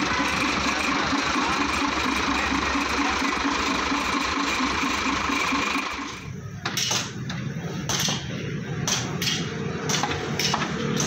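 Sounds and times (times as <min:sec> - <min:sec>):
steady machine hum: 0:00.0 - 0:06.6.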